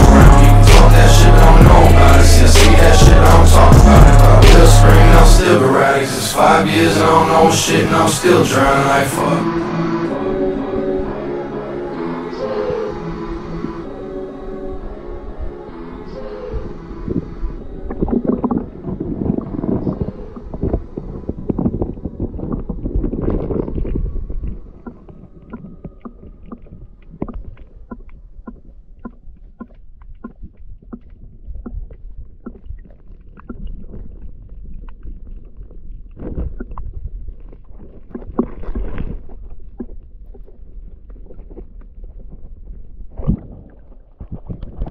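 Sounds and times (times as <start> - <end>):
water churning: 0.0 - 44.9
muffled underwater stream rumble: 12.5 - 44.9
small sharp underwater ticks: 24.8 - 33.9.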